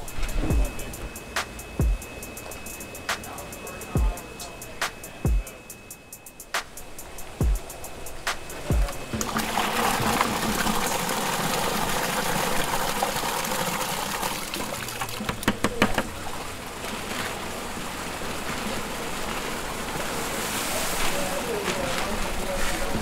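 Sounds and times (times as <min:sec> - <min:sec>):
water splashing from bucket: 0:08.2 - 0:23.0
sharp knocks: 0:15.2 - 0:16.1.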